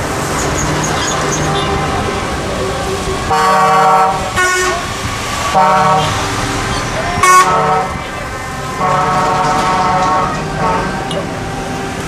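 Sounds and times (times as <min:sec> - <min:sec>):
lorries driving past: 0:00.0 - 0:12.0
truck horn blasts: 0:03.3 - 0:04.9, 0:05.5 - 0:12.0.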